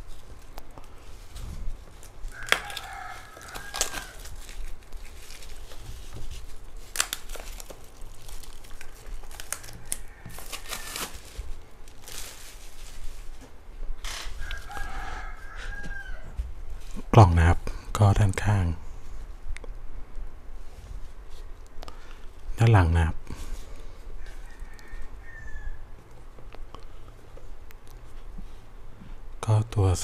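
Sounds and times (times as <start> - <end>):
plastic packaging crinkling and tearing: 0.0 - 15.6.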